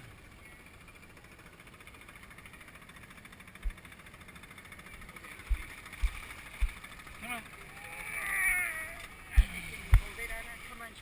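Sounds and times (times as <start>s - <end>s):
outboard motor running: 0.0s - 11.0s
dull thumps: 9.3s - 10.2s.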